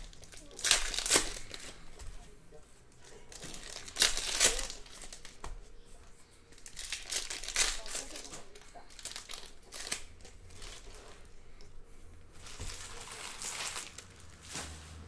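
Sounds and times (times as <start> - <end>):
foil wrappers crinkling: 0.0 - 2.1, 2.9 - 5.6, 6.5 - 11.3, 12.3 - 15.0.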